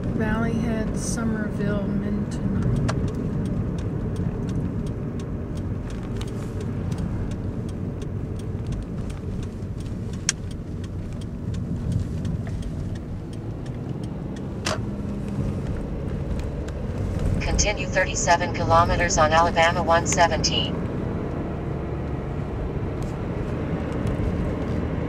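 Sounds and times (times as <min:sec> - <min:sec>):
car road and engine noise: 0:00.0 - 0:25.0
faint ticks: 0:02.6 - 0:16.8.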